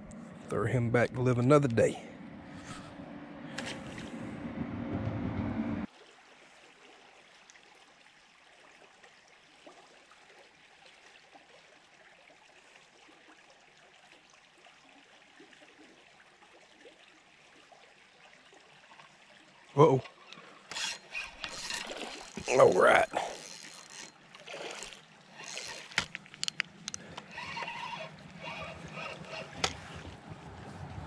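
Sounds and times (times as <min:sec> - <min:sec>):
faint outdoor hiss: 0:18.2 - 0:31.0.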